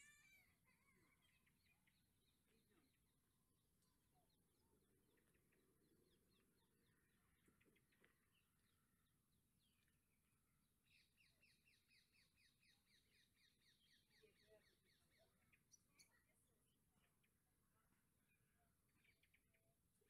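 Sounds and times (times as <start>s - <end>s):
faint bird chirps: 0.0s - 10.1s, 10.9s - 19.7s.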